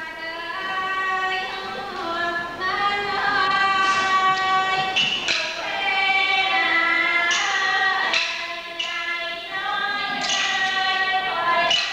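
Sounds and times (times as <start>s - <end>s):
woman singing wavering notes: 0.0s - 11.9s
sharp percussive strikes: 3.8s - 9.2s, 11.6s - 11.9s.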